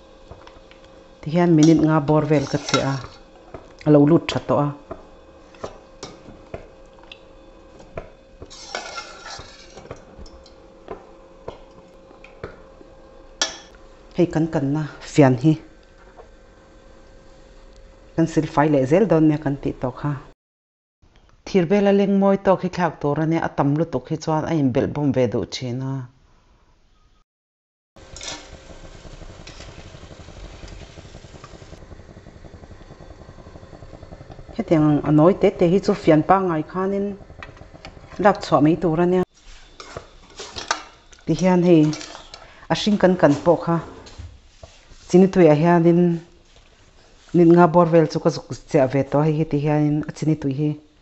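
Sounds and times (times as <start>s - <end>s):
hot oil sizzling and crackling: 0.0s - 18.2s, 28.0s - 45.2s
spoon scraping pot rim: 1.6s - 3.8s, 8.4s - 10.6s, 39.4s - 41.1s, 41.7s - 42.4s.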